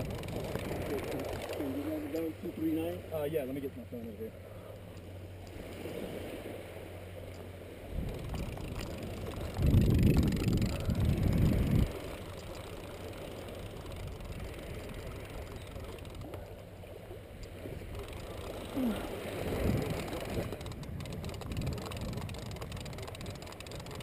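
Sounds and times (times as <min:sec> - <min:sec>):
wind rumbling on microphone: 0:00.0 - 0:02.4, 0:07.6 - 0:24.0.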